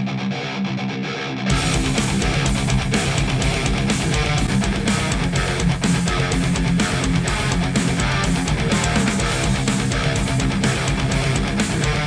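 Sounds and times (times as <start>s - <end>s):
heavy metal music through speakers: 0.0s - 12.0s.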